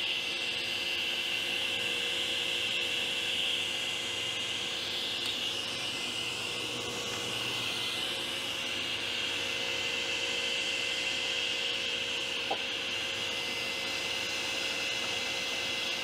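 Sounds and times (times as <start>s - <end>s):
workshop machine running: 0.0s - 16.0s.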